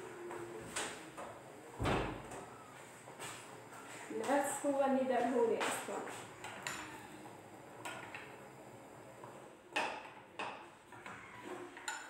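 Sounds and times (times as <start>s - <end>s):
kitchenware clinking and knocking: 9.7s - 12.0s.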